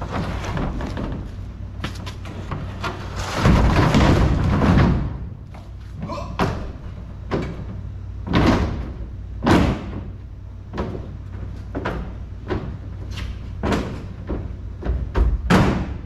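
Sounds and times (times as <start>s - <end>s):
steady low hum: 0.0s - 16.0s
footsteps on truck bed: 0.3s - 2.8s.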